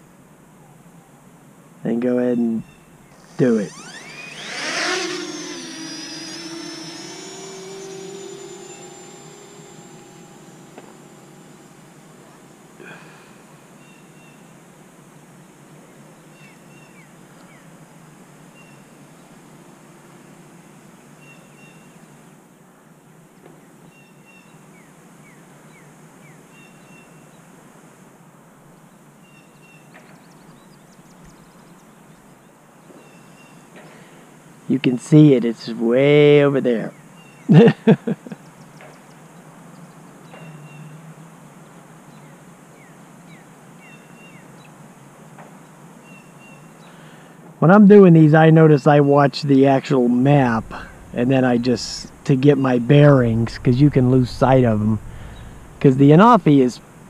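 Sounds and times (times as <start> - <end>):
low outdoor hush: 0.0 - 15.1, 49.2 - 57.0
drone propellers whining: 2.7 - 14.2, 49.8 - 57.0
quick falling chirps: 2.8 - 13.5.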